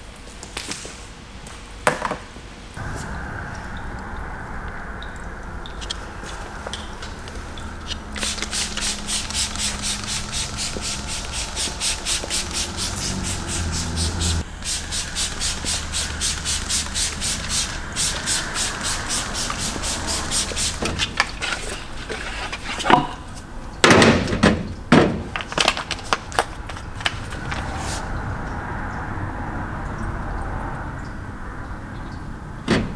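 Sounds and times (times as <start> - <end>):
scrubbing strokes on car surface: 5.4 - 22.9
squeaky rubbing: 5.6 - 14.4.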